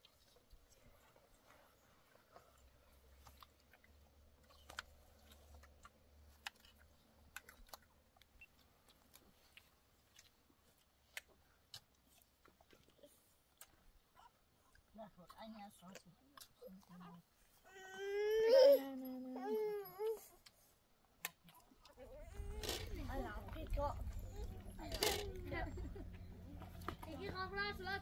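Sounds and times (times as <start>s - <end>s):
faint clicks and crackles: 0.0s - 17.2s, 20.1s - 28.0s
low hum: 22.1s - 28.0s.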